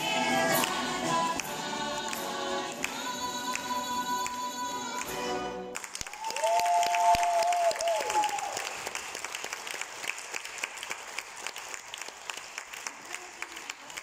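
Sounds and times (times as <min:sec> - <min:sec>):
audience applause: 0:05.8 - 0:14.0
long held cry: 0:06.1 - 0:08.7.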